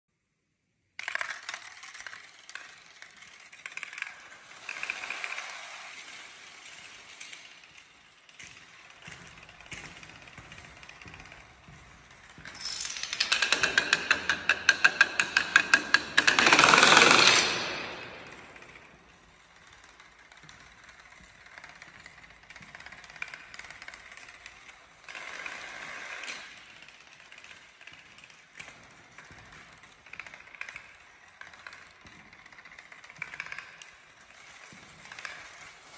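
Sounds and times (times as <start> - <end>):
blocks falling in sharp clacks: 1.0 - 5.1, 8.6 - 19.1
cards and dominoes clattering: 1.0 - 35.9.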